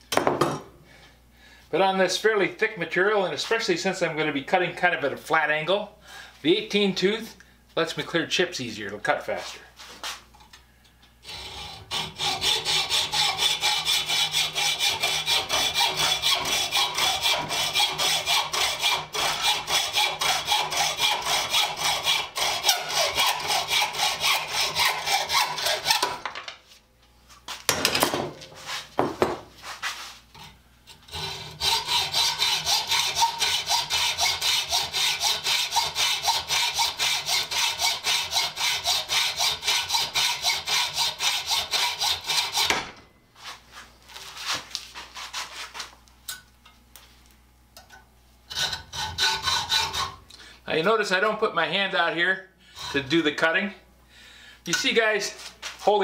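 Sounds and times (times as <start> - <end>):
hacksaw cutting metal bar: 11.2 - 26.3, 30.4 - 42.9, 48.5 - 50.2
short scrapes: 28.5 - 29.0, 29.6 - 30.3, 43.4 - 45.9.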